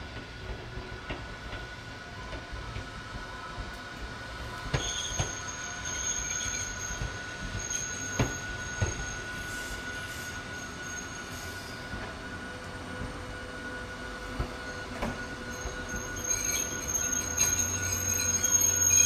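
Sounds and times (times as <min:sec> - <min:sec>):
railcar wheels squealing on rails: 0:00.1 - 0:19.0
higher wheel squeal: 0:04.7 - 0:12.6, 0:13.3 - 0:19.0.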